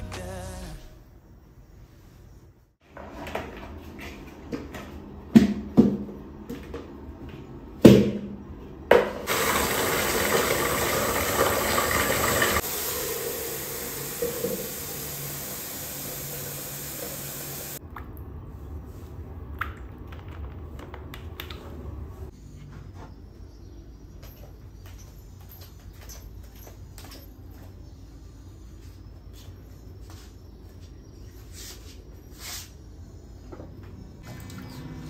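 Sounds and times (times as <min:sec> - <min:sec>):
tap running into bucket: 0:09.2 - 0:17.8.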